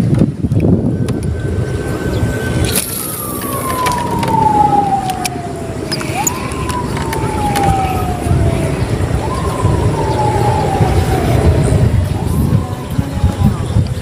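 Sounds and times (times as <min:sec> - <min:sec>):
low rumble: 0:00.0 - 0:14.0
distant siren wailing: 0:00.4 - 0:14.0.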